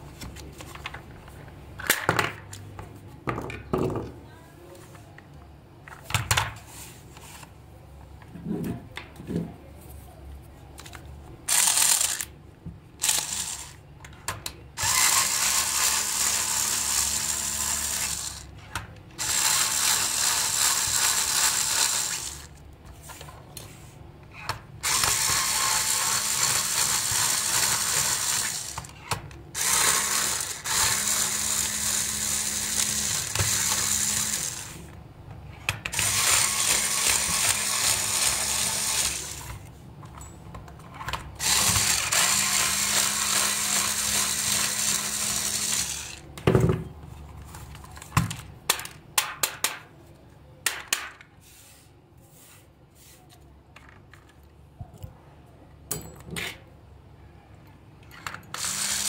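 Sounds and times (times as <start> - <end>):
electric screwdriver motor hum: 13.0 - 13.7, 14.8 - 18.4, 19.2 - 22.5, 29.6 - 34.7, 36.0 - 39.4, 41.4 - 46.2, 58.6 - 59.0.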